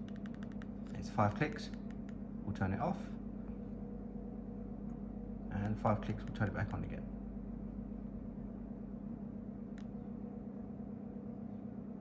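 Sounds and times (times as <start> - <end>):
low electrical hum: 0.0 - 12.0
faint click: 9.7 - 10.0.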